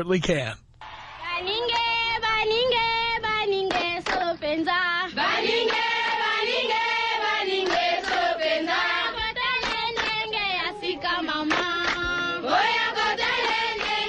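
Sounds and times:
chanting voices with wavering pitch: 3.6s - 14.0s.

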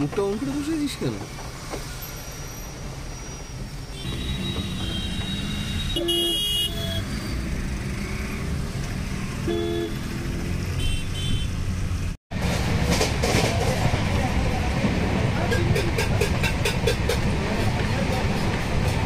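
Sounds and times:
car horn honks: 3.9s - 7.1s, 9.4s - 10.1s, 10.8s - 11.6s.

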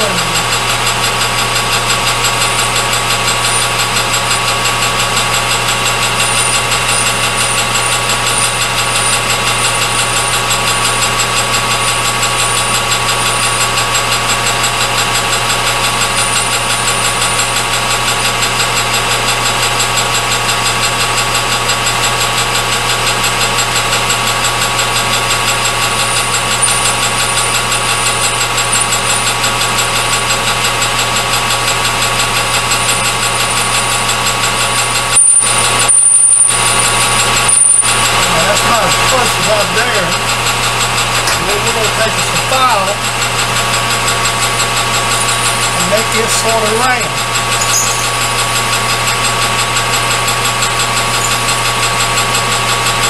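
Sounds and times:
high tones from motor and gearing: 0.0s - 1.2s, 35.1s - 40.6s, 41.2s - 43.3s, 45.0s - 48.9s, 51.1s - 51.8s
metal lathe humming: 0.0s - 19.6s, 24.1s - 53.0s.

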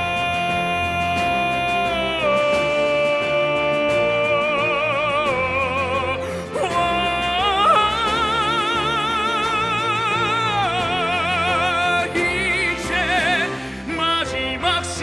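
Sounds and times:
man singing with vibrato: 0.0s - 15.0s
orchestral backing music: 0.0s - 15.0s.

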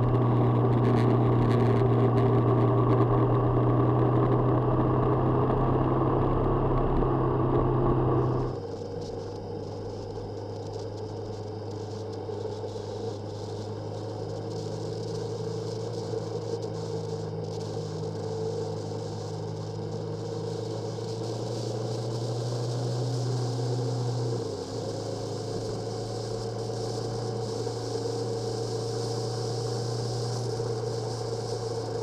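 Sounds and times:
road noise: 0.0s - 8.8s
motorcycle engine running: 0.0s - 32.0s.

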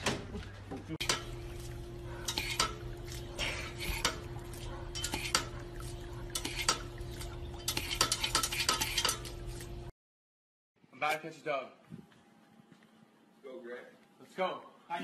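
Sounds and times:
steady hum: 1.0s - 9.9s.

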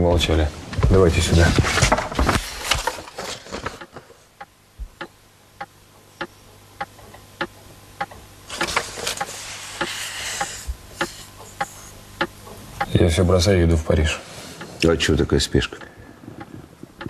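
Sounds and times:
clock ticking: 3.8s - 13.2s.

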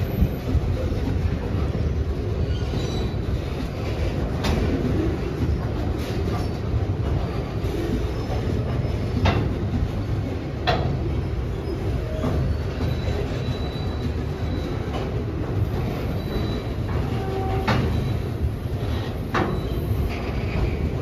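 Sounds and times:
train rumbling on track: 0.0s - 21.0s
faint wheel squeal: 2.4s - 3.6s, 11.4s - 20.8s.

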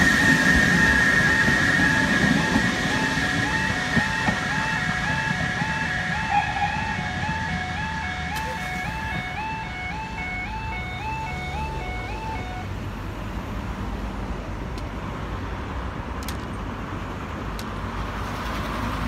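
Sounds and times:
two-tone level crossing alarm: 0.0s - 12.7s
road traffic rushing: 0.0s - 19.0s.

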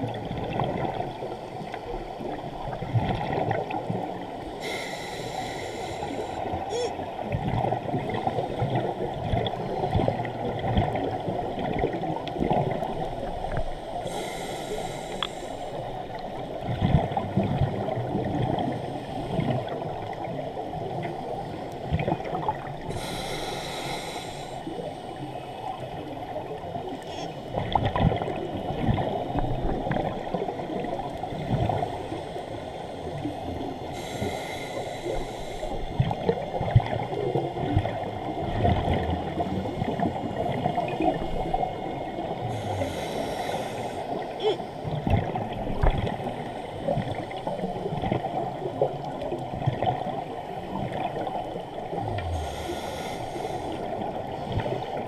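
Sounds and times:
muffled underwater noise: 4.0s - 11.5s, 12.7s - 16.4s, 22.9s - 55.0s.

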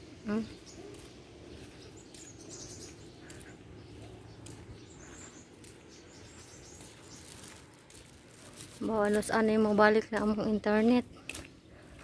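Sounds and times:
bird chirps: 0.1s - 7.6s.

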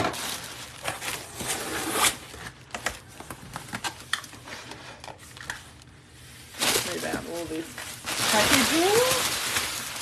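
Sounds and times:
plastic air pillows crinkling: 0.0s - 1.4s, 5.3s - 10.0s.

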